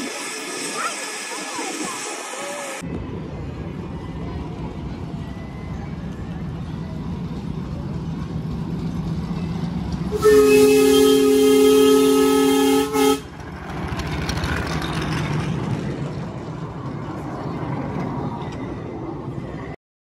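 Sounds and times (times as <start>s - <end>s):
train rumbling past on track: 0.0s - 19.8s
steam locomotive whistle: 10.1s - 13.3s.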